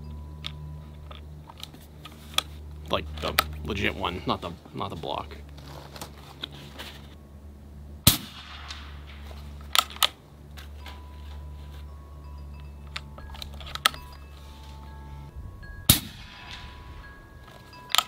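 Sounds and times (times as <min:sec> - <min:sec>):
steady low hum: 0:00.0 - 0:18.0
air rifle shot: 0:08.0 - 0:10.0, 0:15.9 - 0:16.7.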